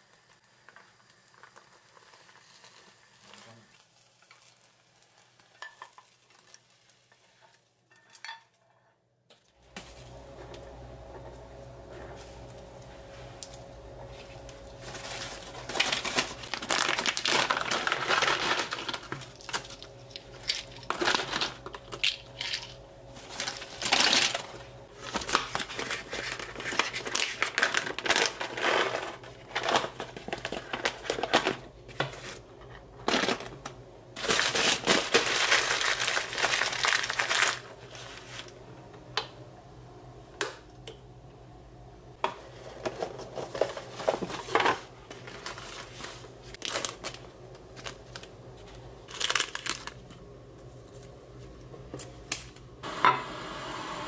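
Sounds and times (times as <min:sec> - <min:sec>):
paper bags crinkling: 0:14.1 - 0:32.4, 0:33.0 - 0:38.6, 0:42.8 - 0:51.1.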